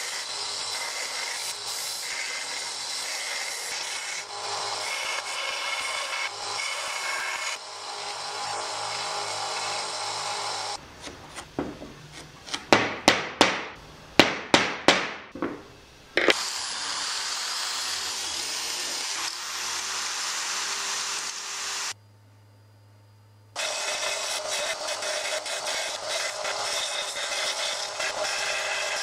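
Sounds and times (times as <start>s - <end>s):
electric drill boring wood: 0.0s - 10.8s, 16.3s - 22.0s, 23.6s - 29.0s
sharp knocks: 11.0s - 12.0s, 12.6s - 16.4s.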